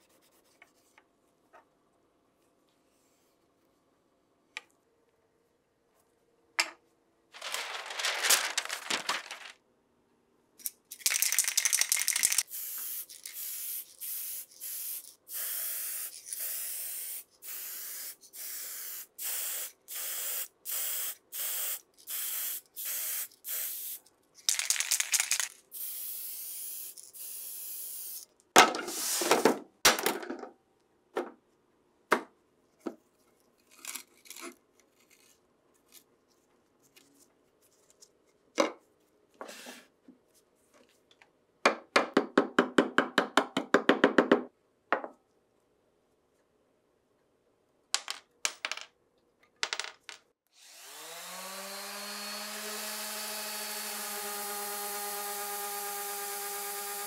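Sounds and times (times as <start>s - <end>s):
handling noises: 7.4s - 9.6s
aerosol can spraying: 11.7s - 24.0s, 25.2s - 28.3s.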